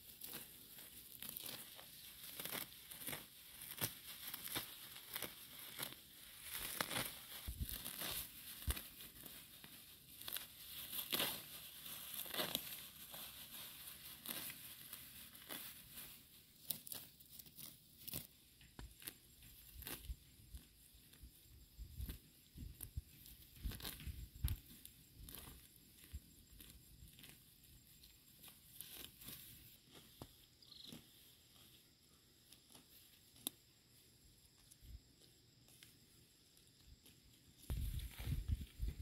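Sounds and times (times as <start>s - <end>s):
weeds tearing and rustling: 0.0s - 31.6s, 37.6s - 39.0s.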